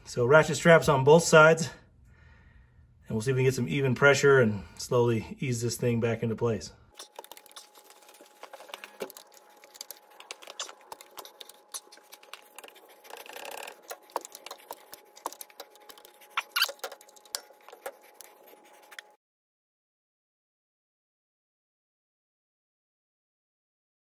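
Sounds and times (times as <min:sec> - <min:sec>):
ratchet clicks and metal scrapes: 0:09.1 - 0:17.7.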